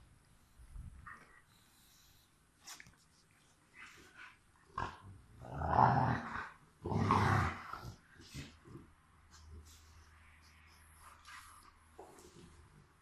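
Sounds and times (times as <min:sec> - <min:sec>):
dogs growling: 0:04.7 - 0:08.9.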